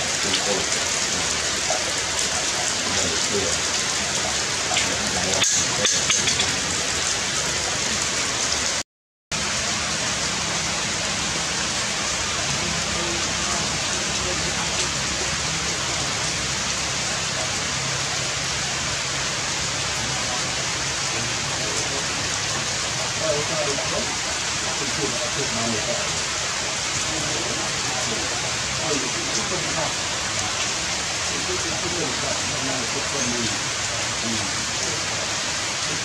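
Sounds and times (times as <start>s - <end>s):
rain falling on leaves: 0.0s - 8.8s, 9.4s - 36.0s.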